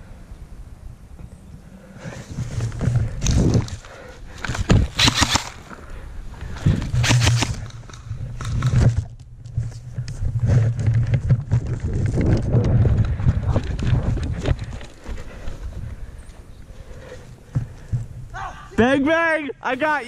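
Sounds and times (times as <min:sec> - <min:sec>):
low microphone rumble: 0:05.9 - 0:16.8.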